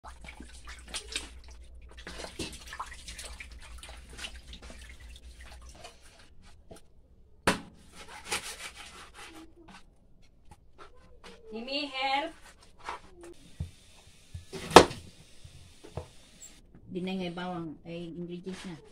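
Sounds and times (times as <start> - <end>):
water sloshing and splashing: 0.0 - 7.0.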